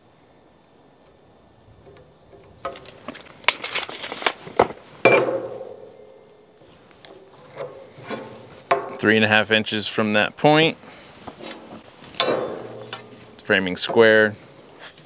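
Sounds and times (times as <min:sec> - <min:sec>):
tape measure retracting and clicking: 0:02.7 - 0:04.4
metal square clanking and ringing: 0:12.2 - 0:13.0.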